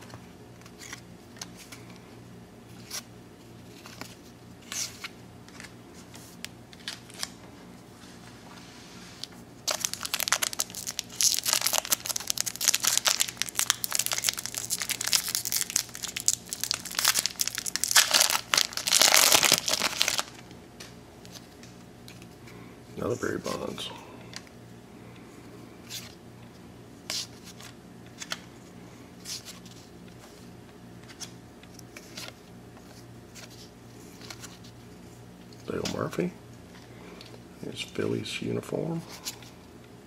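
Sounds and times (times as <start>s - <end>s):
wrapper tearing and crinkling: 9.6s - 20.4s.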